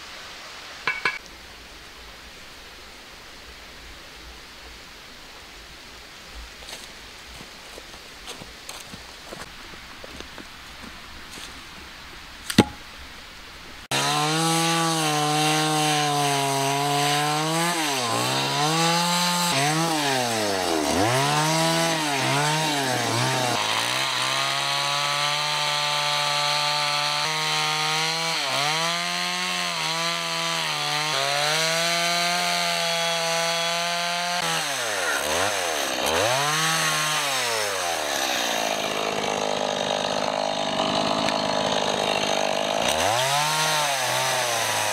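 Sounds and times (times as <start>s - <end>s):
sharp knock: 12.5s - 12.8s
chainsaw cutting log: 12.5s - 12.9s, 13.8s - 44.9s.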